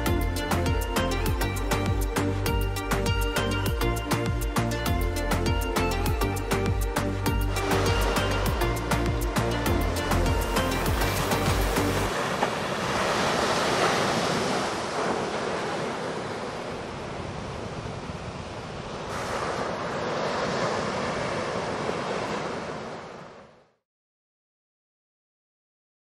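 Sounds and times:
background music: 0:00.0 - 0:12.1
waves breaking on shore: 0:04.2 - 0:23.8.

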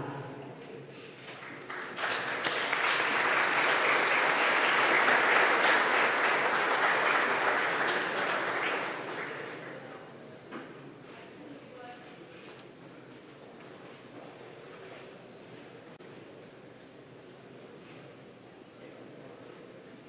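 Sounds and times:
audience applauding: 0:01.3 - 0:10.0.

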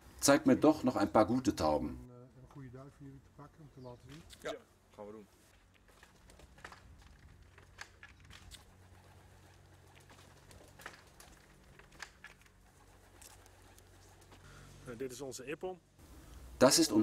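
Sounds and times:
pigeons cooing: 0:08.2 - 0:14.9.

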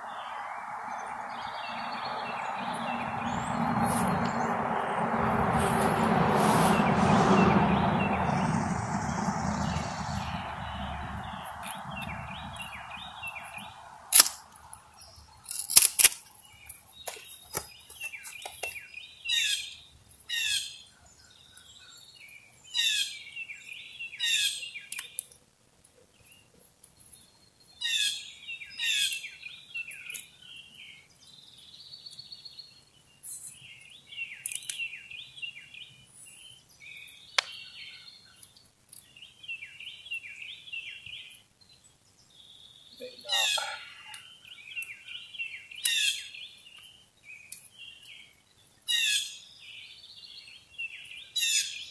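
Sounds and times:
birds chirping and twittering: 0:00.0 - 0:15.7, 0:26.2 - 0:51.9
fence wire clicks and snaps: 0:15.5 - 0:16.2.

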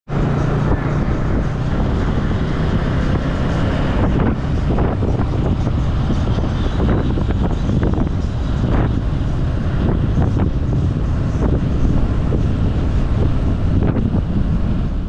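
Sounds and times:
motorcycle engine running: 0:00.1 - 0:15.0
wind buffeting microphone: 0:00.1 - 0:15.0.

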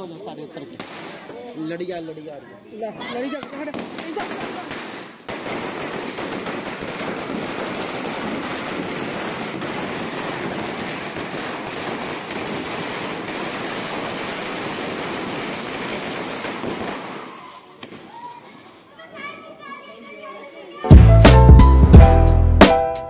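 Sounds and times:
firecracker string crackling: 0:00.7 - 0:01.5, 0:03.5 - 0:18.8.

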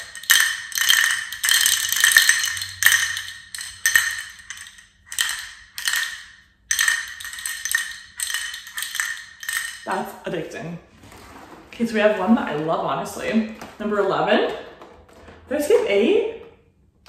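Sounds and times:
ball rattling in plastic maze: 0:00.0 - 0:10.2.

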